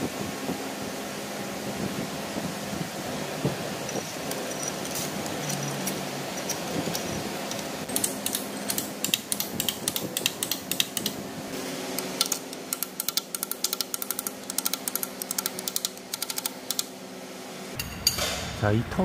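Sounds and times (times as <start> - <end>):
metal parts clicking: 3.9 - 11.2, 12.2 - 16.8.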